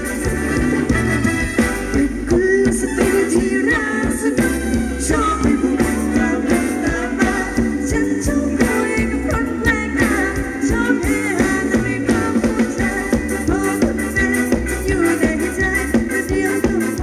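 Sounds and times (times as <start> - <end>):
amplified band music: 0.0 - 17.0
steady drum beat: 0.0 - 17.0.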